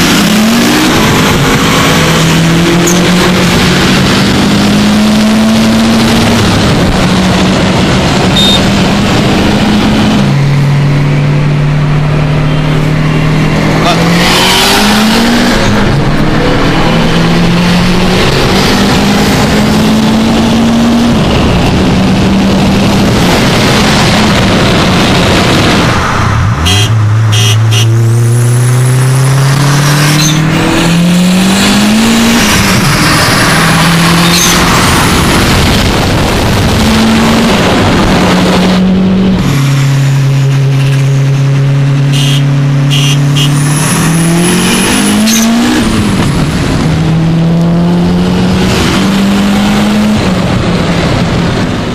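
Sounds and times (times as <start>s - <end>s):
car engine accelerating: 0.0s - 51.9s
high turbo whistle: 42.1s - 45.4s.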